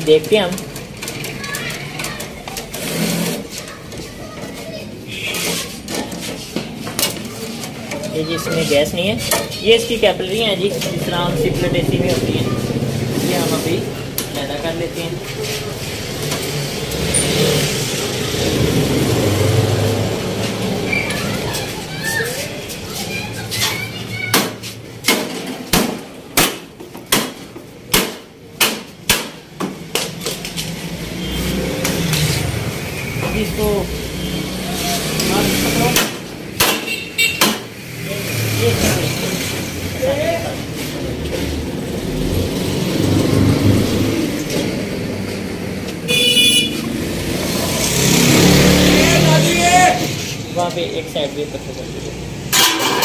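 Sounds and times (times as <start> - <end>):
road traffic rumble: 0.0 - 53.0
hammer striking sheet metal: 24.3 - 30.1, 35.9 - 37.8, 52.5 - 53.0
high-pitched horn toot: 46.1 - 46.8.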